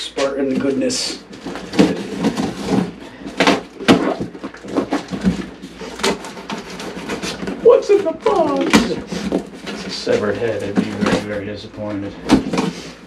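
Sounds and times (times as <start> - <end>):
cardboard flaps crackling: 0.2 - 13.0
packing tape ripping: 1.4 - 10.2.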